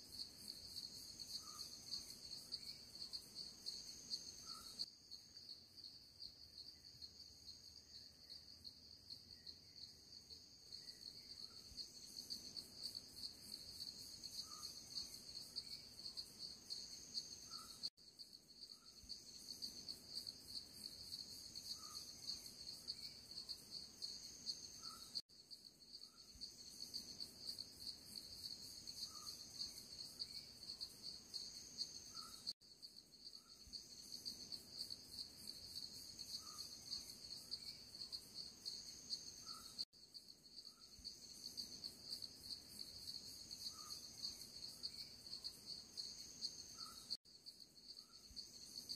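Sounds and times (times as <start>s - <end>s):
insects trilling: 25.9s - 48.9s.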